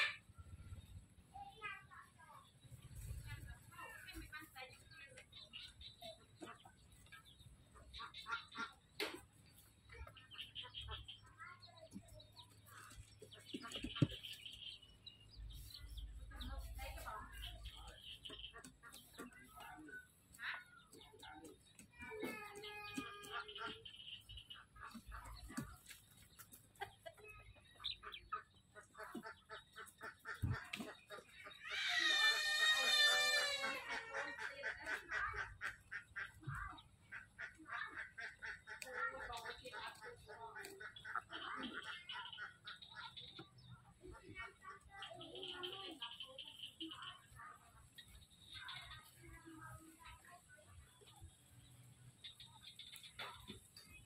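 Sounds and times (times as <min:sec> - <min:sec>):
poultry peeping and chirping: 0:00.0 - 0:54.0
poultry calling: 0:27.1 - 0:49.6.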